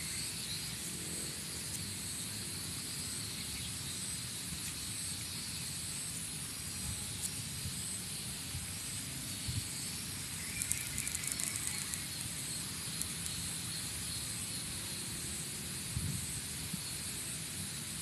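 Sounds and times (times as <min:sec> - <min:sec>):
low rumble and hiss: 0:00.0 - 0:18.0
faint high clicks: 0:10.4 - 0:13.4.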